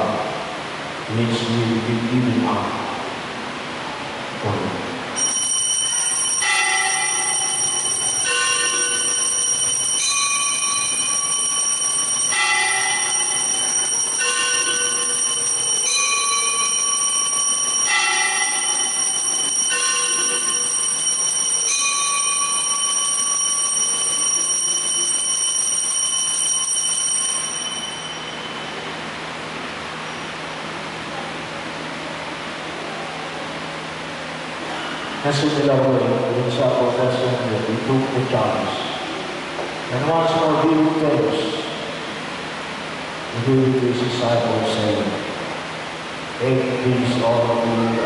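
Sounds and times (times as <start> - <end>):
bells ringing: 5.2 - 30.4, 34.6 - 42.2.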